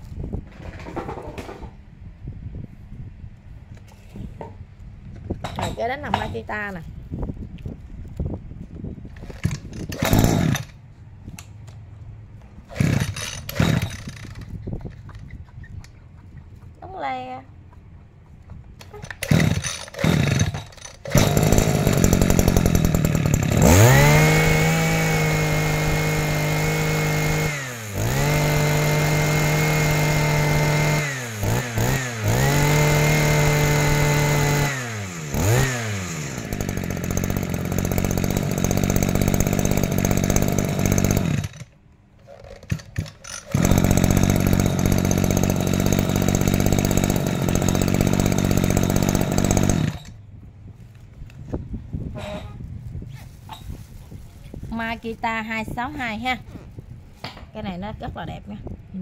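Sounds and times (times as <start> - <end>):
pull-start cord: 9.1 - 11.5, 12.7 - 15.5, 18.8 - 50.2
brush-cutter engine revving: 9.2 - 10.8, 12.6 - 15.3, 18.9 - 41.7, 42.4 - 50.2.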